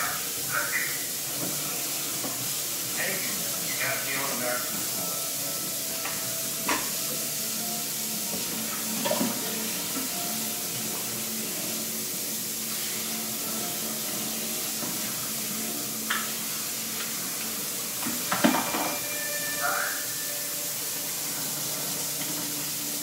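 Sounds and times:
tap water running into sink: 0:01.0 - 0:19.1, 0:20.8 - 0:23.0.

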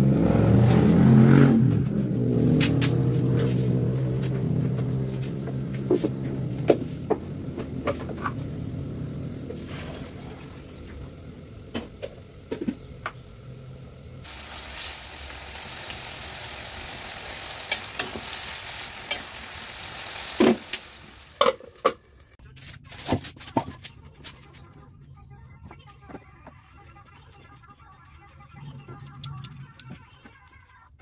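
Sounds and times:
vegetables sizzling in a wok: 0:02.4 - 0:22.4.

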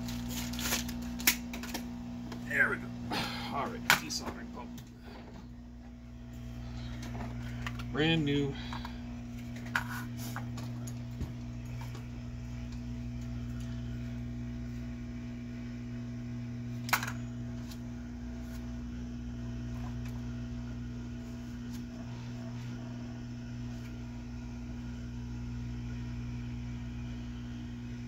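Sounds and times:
hot air gun blower hum: 0:02.0 - 0:28.0.

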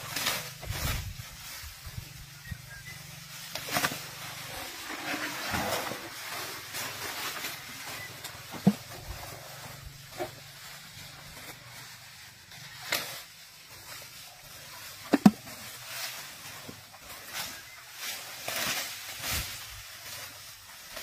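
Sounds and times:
rustling foliage: 0:00.0 - 0:21.0.

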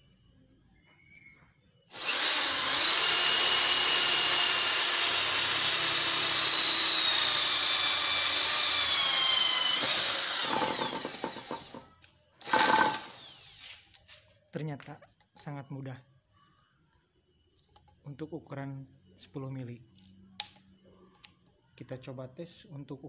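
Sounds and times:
power drill boring into wood: 0:01.9 - 0:11.8, 0:12.4 - 0:13.8.

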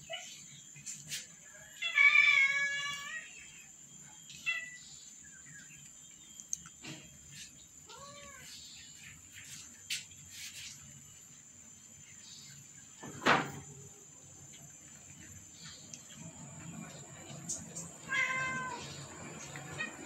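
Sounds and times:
cat meowing: 0:18.0 - 0:19.0.

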